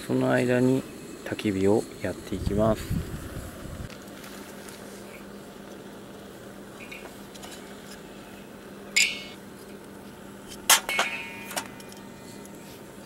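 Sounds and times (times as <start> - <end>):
wooden sticks clattering on steel: 10.6 - 12.1.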